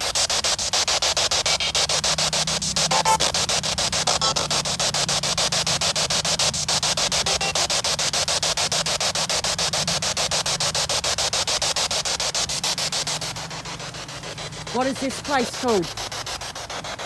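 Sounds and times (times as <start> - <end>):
pulsing radio static: 1.3 - 8.2, 14.7 - 16.0.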